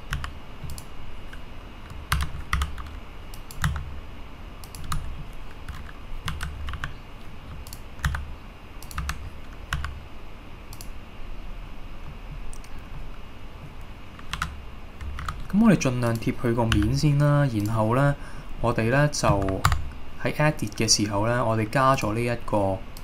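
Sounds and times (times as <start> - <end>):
computer keyboard keys clicking: 0.0 - 3.9, 4.6 - 10.0, 10.7 - 11.0, 12.4 - 12.8, 14.2 - 17.0, 19.3 - 19.9.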